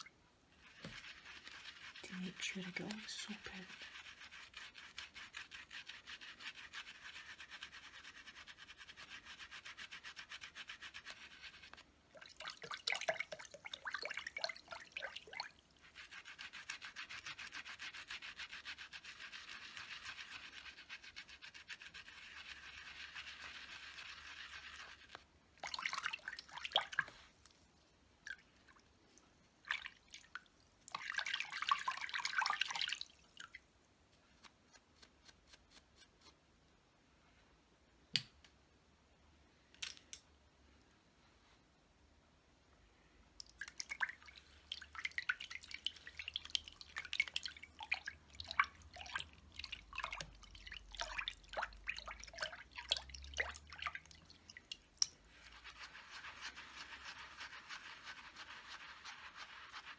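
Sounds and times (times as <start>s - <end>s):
brush swishing on silicone pad: 0.5s - 11.8s, 14.8s - 27.6s, 55.2s - 59.9s.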